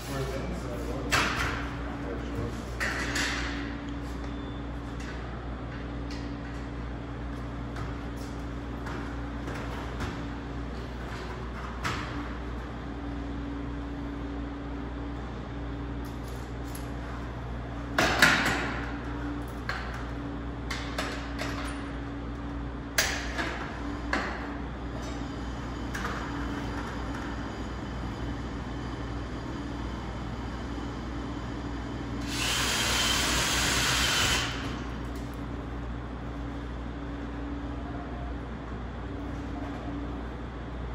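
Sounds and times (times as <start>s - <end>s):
drill-driver driving screw: 32.2s - 34.6s.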